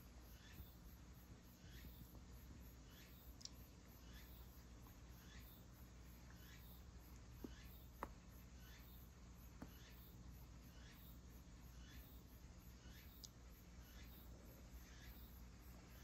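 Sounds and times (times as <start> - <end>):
faint high chirps: 0.0 - 0.9, 1.5 - 16.0
faint clicks: 3.4 - 3.6, 13.2 - 13.4.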